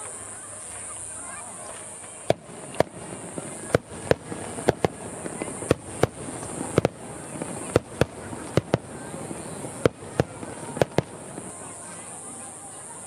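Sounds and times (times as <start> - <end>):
continuous noisy rumble: 0.0 - 12.7
fireworks bursting: 1.8 - 13.0.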